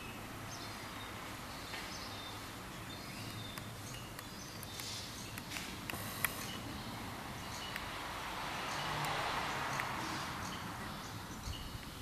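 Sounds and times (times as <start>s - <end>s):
street background noise: 0.0s - 12.0s
light clicks: 3.2s - 6.6s, 7.6s - 7.9s.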